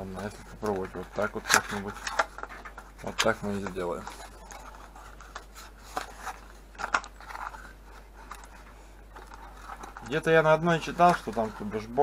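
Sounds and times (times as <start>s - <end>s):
sharp cardboard crackles: 0.0s - 12.0s
cardboard box scraping and crinkling: 9.2s - 12.0s.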